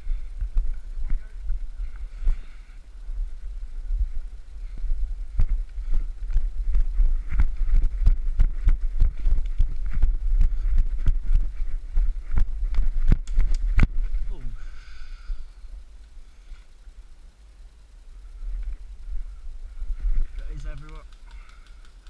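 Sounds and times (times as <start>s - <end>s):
wind rumble on microphone: 0.0s - 14.4s
running footsteps on woodland floor: 4.0s - 13.9s.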